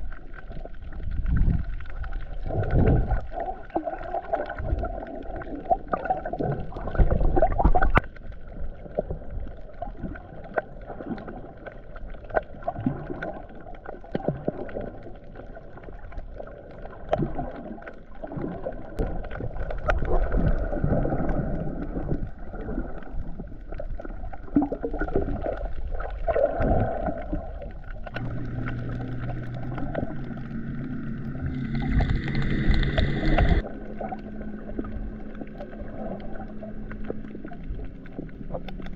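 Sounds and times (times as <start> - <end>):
water sloshing underwater: 0.0 - 38.9
droning hum: 26.4 - 38.9.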